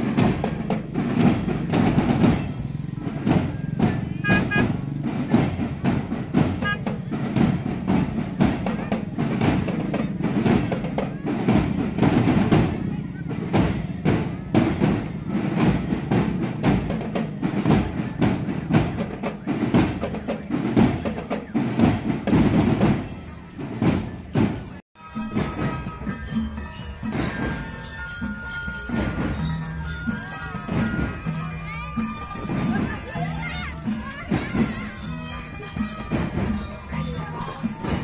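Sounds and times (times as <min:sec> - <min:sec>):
drum-led music: 0:00.0 - 0:38.0
voices: 0:00.0 - 0:38.0.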